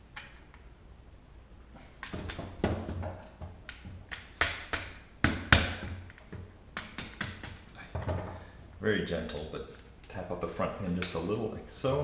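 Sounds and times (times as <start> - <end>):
sharp taps and clicks: 2.0 - 7.6.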